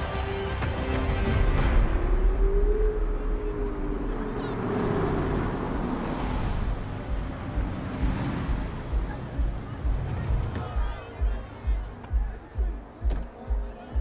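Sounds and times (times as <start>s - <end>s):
cars passing: 1.9s - 13.0s.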